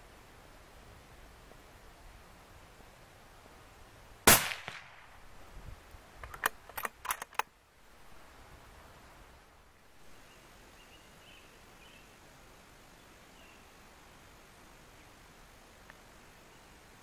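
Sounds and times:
rifle shot with echo: 4.3 - 5.2
sharp clicks: 6.2 - 7.5.

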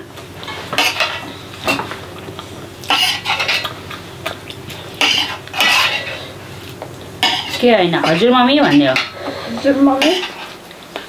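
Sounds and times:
spoons scraping metal plates: 5.0 - 6.3, 7.2 - 10.5.

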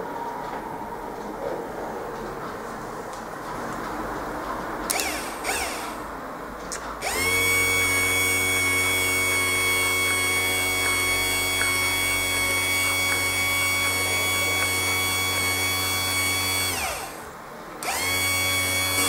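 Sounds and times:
wiper motor whining: 4.9 - 6.2, 7.0 - 19.0.

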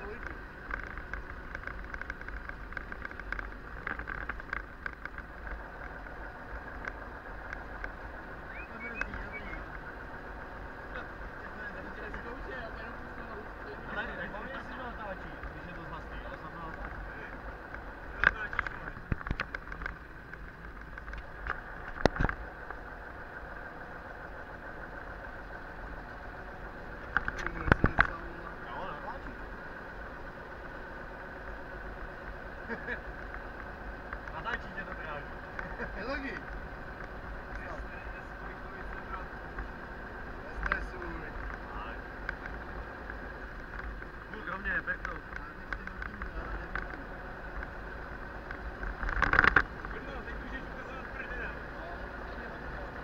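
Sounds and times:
road noise rumble inside vehicle: 0.0 - 53.0
short rattles and clicks: 0.2 - 8.0, 17.7 - 22.8, 48.4 - 50.6.

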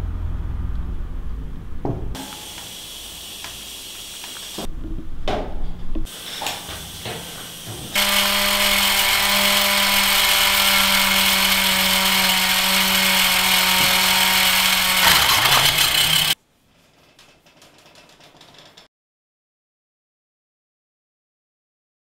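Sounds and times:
toy electric motor whirring: 8.0 - 16.4.

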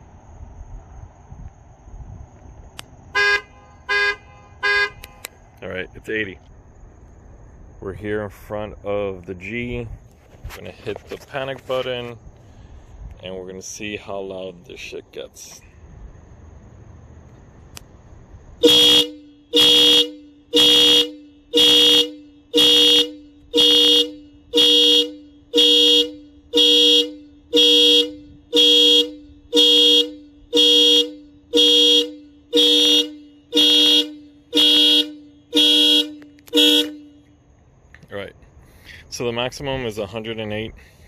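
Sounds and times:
two-note car horn blasts: 3.1 - 5.3, 18.6 - 37.4.

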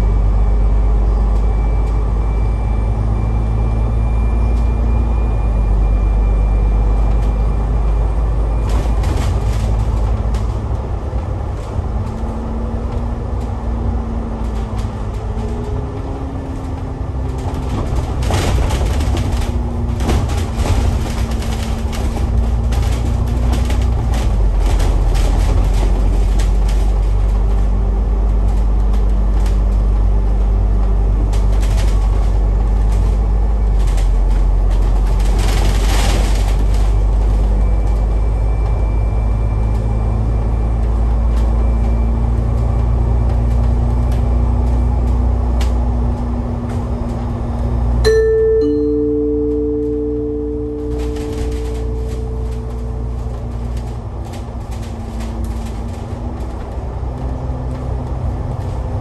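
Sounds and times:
bus engine and road drone: 0.0 - 59.0
two-note chime: 48.1 - 53.5.

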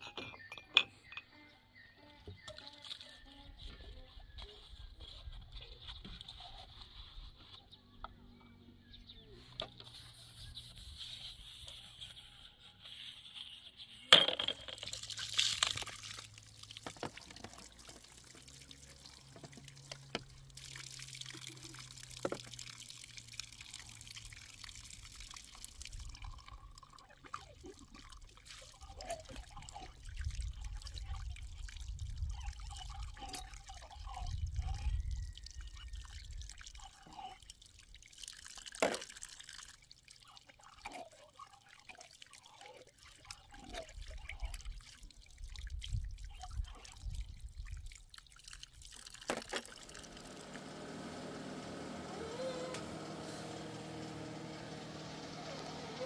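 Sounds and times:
tap water splashing: 14.9 - 26.2, 38.4 - 39.8, 48.1 - 50.6.

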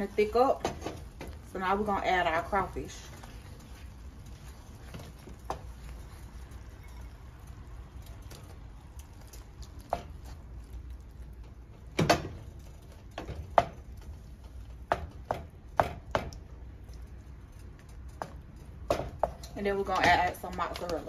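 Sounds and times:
wooden spoon knocking on skillet: 13.2 - 16.5, 18.2 - 20.8.

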